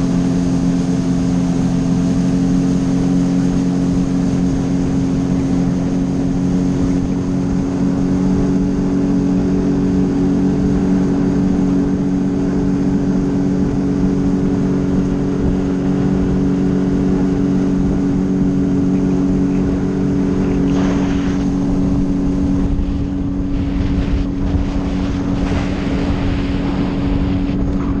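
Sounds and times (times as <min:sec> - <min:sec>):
watercraft engine cruising: 0:00.0 - 0:28.0
wind on microphone: 0:00.0 - 0:28.0.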